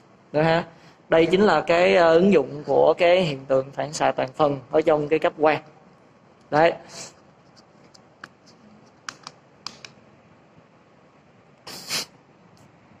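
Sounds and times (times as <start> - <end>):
short hiss: 11.6 - 12.2.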